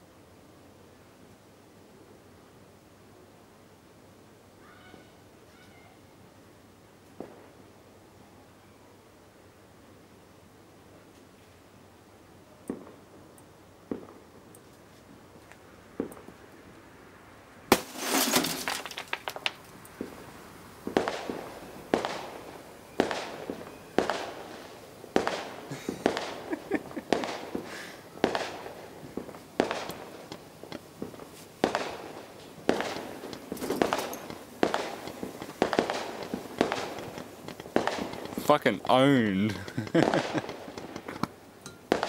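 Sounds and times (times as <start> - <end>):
fireworks bangs: 17.7 - 42.0.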